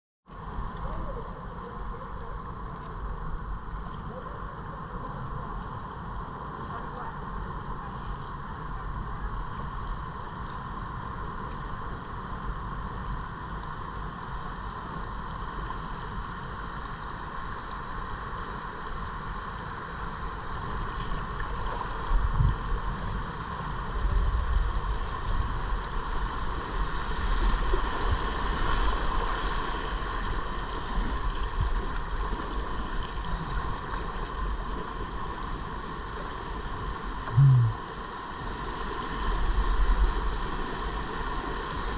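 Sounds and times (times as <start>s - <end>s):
wind rumble on microphone: 0.3s - 41.9s.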